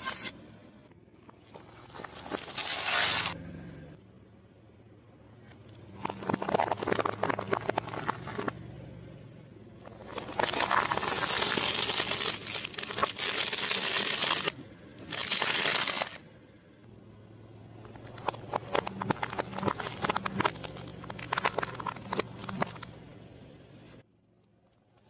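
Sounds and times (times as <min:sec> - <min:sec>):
car tyre crushing crunchy food: 0:01.3 - 0:03.4, 0:05.8 - 0:08.6, 0:09.8 - 0:16.3, 0:17.7 - 0:23.1
plastic bottle crinkling under tyre: 0:06.0 - 0:08.6, 0:09.9 - 0:16.2, 0:17.9 - 0:23.0.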